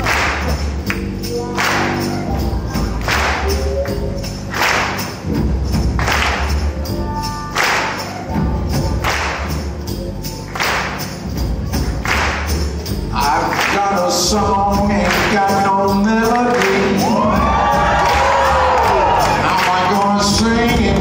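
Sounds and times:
jazz blues band playing: 0.0s - 21.0s
man singing: 13.1s - 17.9s, 19.2s - 21.0s.

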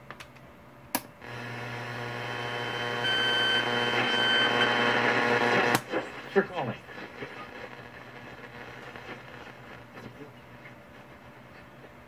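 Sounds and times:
electronic buzz and hiss: 1.2s - 10.1s.

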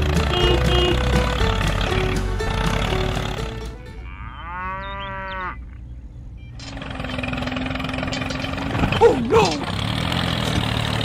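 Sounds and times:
steady engine-like hum: 0.0s - 4.0s, 5.6s - 11.0s
background music: 0.0s - 4.2s
drawn-out moo: 4.0s - 5.8s.

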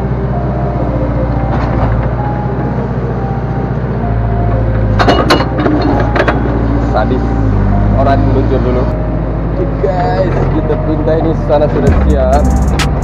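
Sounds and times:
diesel engine running: 0.0s - 13.0s
sharp metallic knocks: 4.9s - 6.4s.

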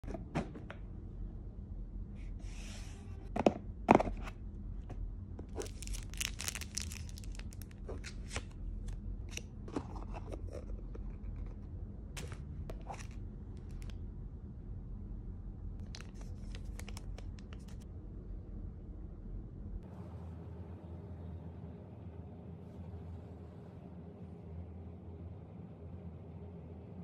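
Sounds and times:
plastic sleeve crinkling: 5.5s - 8.6s, 15.8s - 17.8s.

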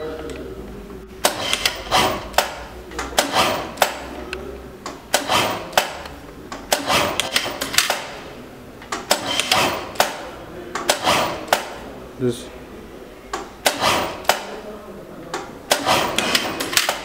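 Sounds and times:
sewing machine clicks: 5.1s - 8.1s, 15.7s - 17.0s.

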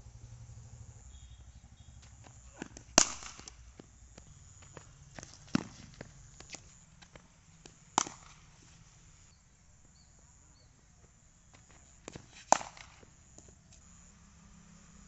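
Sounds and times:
cricket bat striking ball: 2.2s - 4.4s, 5.3s - 6.1s, 7.6s - 8.6s, 12.1s - 13.6s.

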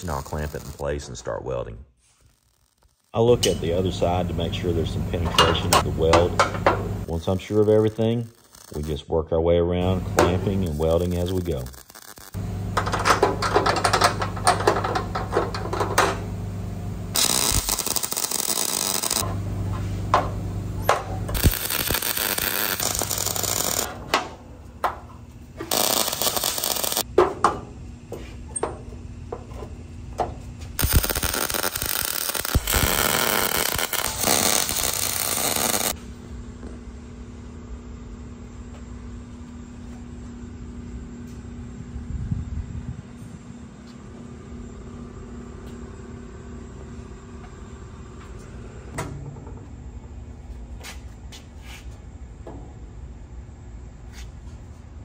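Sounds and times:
welding arc crackle: 0.0s - 1.1s, 2.0s - 9.0s, 9.8s - 15.8s, 17.1s - 19.3s, 21.2s - 23.9s, 25.6s - 27.1s, 30.8s - 36.0s
steady low hum: 3.2s - 55.0s.

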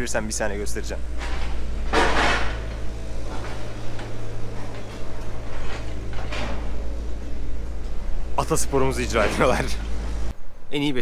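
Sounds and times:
low construction rumble: 0.0s - 11.0s
faint knocks and clatters: 1.1s - 8.1s.

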